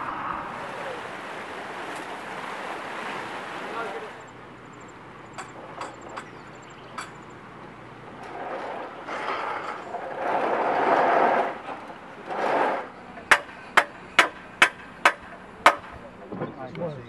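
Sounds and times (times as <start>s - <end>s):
rushing noise: 0.0s - 4.3s.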